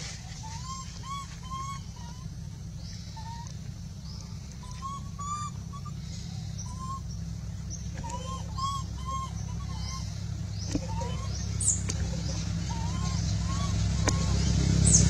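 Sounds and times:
steady low rumble: 0:00.0 - 0:15.0
whistle-like animal calls: 0:00.4 - 0:02.3, 0:04.6 - 0:06.0, 0:06.6 - 0:07.0, 0:08.0 - 0:10.1, 0:10.8 - 0:14.6.

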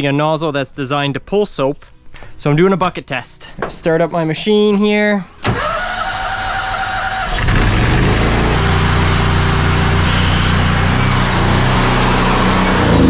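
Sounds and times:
pressure washer engine running: 0:07.0 - 0:13.0.

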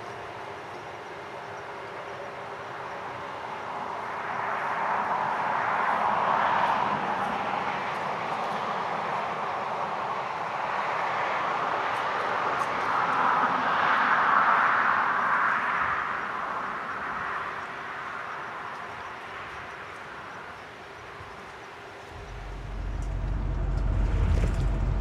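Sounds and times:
vehicle passing by: 0:22.1 - 0:25.0.

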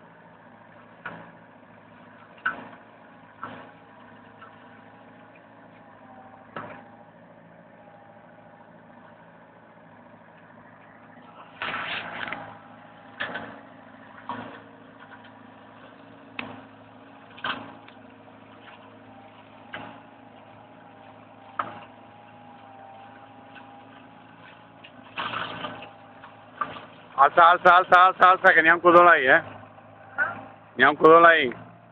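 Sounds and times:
excavator mulcher humming: 0:00.0 - 0:31.9
mulcher biting into brush: 0:11.3 - 0:18.0.

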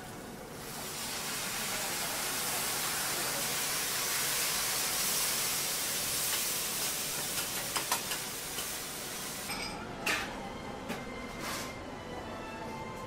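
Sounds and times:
food sizzling on a griddle: 0:00.5 - 0:09.5.

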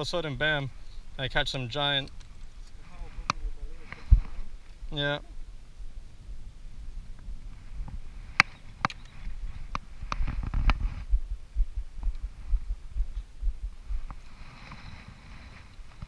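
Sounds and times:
low handling thumps: 0:09.4 - 0:14.2.

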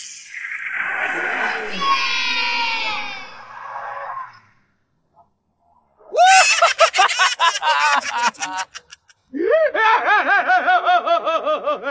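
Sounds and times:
high-pitched cartoon voice laughing: 0:06.2 - 0:09.1.

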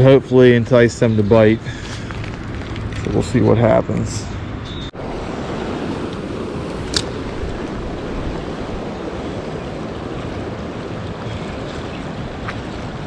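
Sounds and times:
creek rushing: 0:05.0 - 0:13.0
sharp click: 0:06.8 - 0:07.2.

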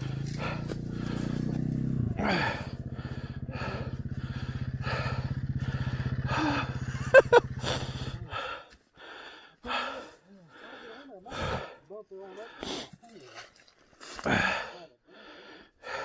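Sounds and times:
dirt bike engine idling: 0:00.0 - 0:12.8
heavy panting: 0:00.0 - 0:13.0, 0:14.3 - 0:16.0.

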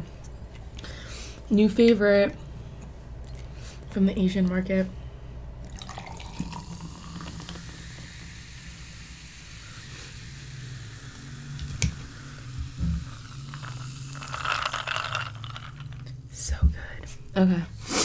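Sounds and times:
soda fizzing into a glass: 0:05.7 - 0:16.0.

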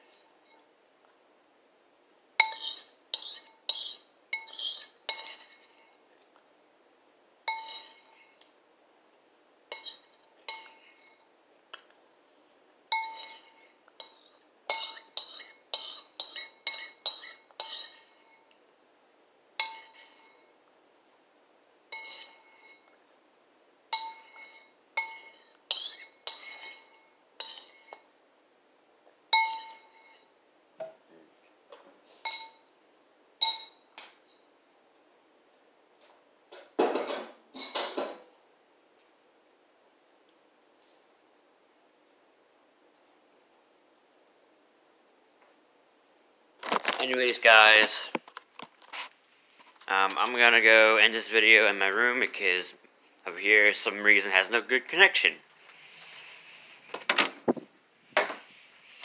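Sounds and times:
spoon clinking against bowl: 0:02.4 - 0:05.7, 0:07.5 - 0:08.1, 0:09.7 - 0:11.2, 0:12.9 - 0:18.2, 0:19.6 - 0:20.4, 0:21.9 - 0:22.9, 0:24.0 - 0:28.0, 0:29.4 - 0:30.3, 0:32.2 - 0:32.6, 0:33.4 - 0:33.8.

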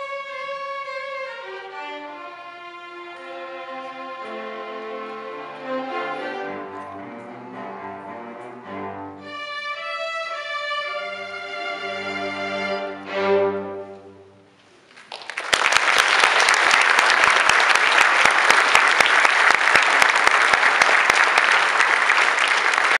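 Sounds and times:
string orchestra chord: 0:00.0 - 0:14.5
audience applause: 0:14.9 - 0:23.0.

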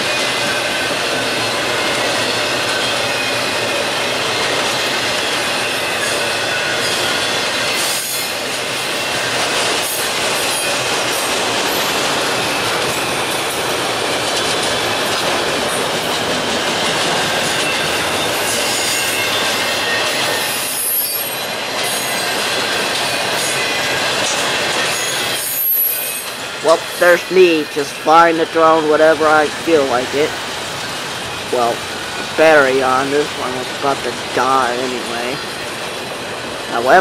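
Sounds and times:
wheel-on-rail noise: 0:00.0 - 0:37.0
high thin wheel squeal: 0:17.6 - 0:22.7, 0:24.8 - 0:26.5.

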